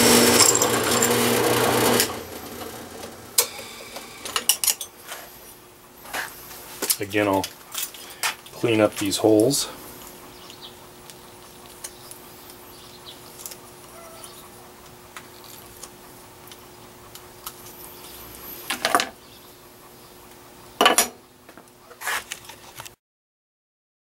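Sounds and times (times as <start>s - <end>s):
metal scraping: 0.0s - 3.2s.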